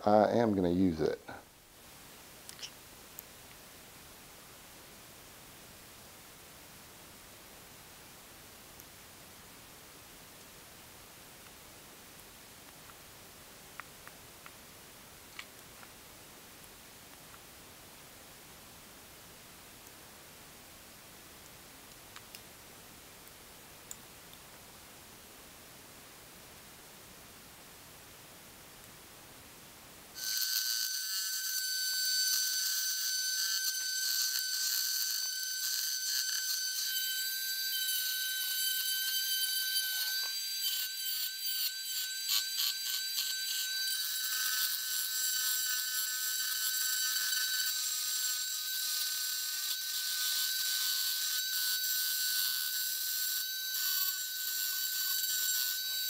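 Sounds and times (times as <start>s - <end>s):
rotary tool whining cutting plastic: 30.2s - 56.0s.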